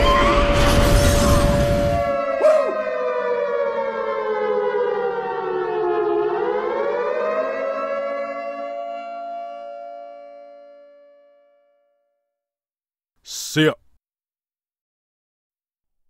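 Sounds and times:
wailing siren-like tone: 0.0 - 11.2.

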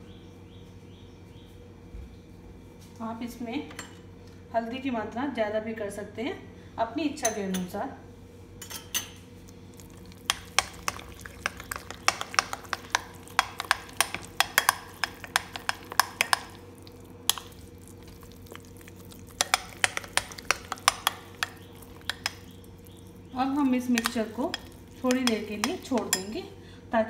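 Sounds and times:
metal spoon clinking glass bowl: 9.8 - 16.6, 19.3 - 22.6, 23.9 - 26.4.

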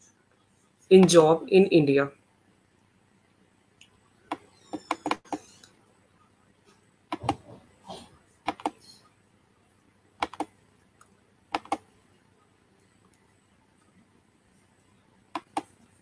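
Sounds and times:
computer mouse clicks: 4.3 - 5.8, 7.1 - 7.4, 8.4 - 8.8, 10.2 - 11.9, 15.3 - 15.8.

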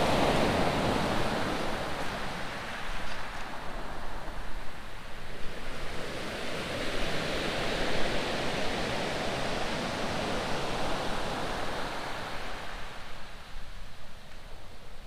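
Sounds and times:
wave washing on shingle beach: 0.0 - 4.4.

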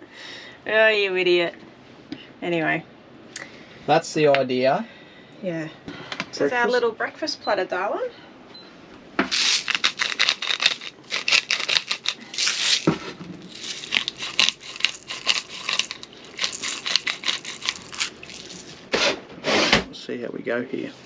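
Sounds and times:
pepper grinder crunching: 9.3 - 18.9.

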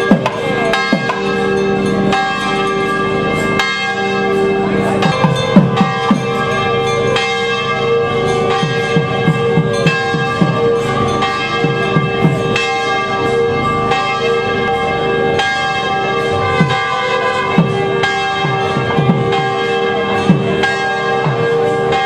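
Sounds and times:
low bell strokes: 0.0 - 22.0
temple bells ringing: 0.0 - 22.0.

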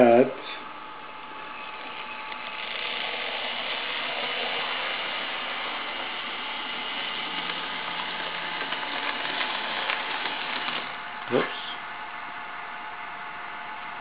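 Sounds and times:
model motor whirring: 1.5 - 11.0.

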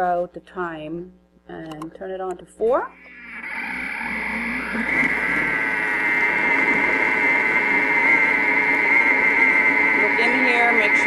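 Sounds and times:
kitchen mixer motor whining: 3.0 - 11.0.

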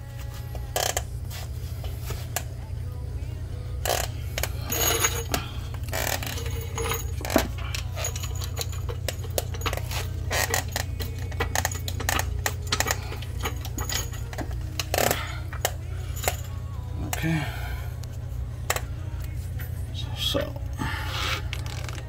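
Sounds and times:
steady low hum: 0.0 - 22.0
metallic clicks and clanks: 3.8 - 16.5.

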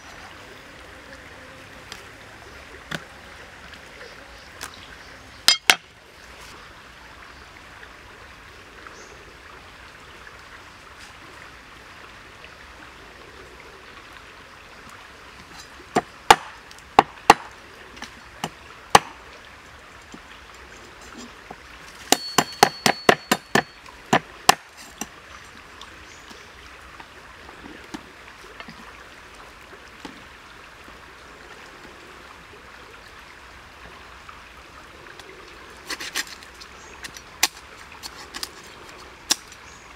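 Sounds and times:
steady background hiss: 0.0 - 39.9
cleaver chopping on wooden block: 16.0 - 17.4, 22.1 - 24.6.

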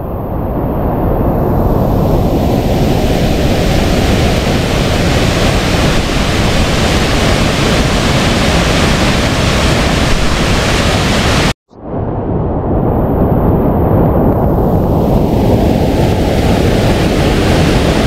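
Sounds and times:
waterfall rushing: 3.0 - 11.5.

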